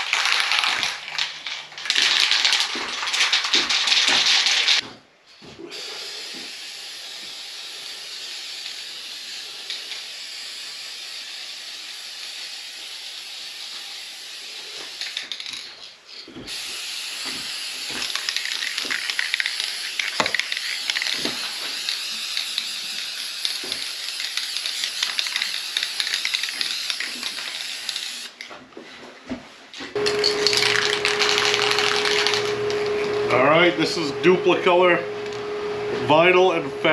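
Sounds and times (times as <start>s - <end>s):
aerosol spray can hissing: 5.9s - 15.6s, 16.5s - 28.4s, 30.0s - 33.1s
steady tone: 30.0s - 36.9s.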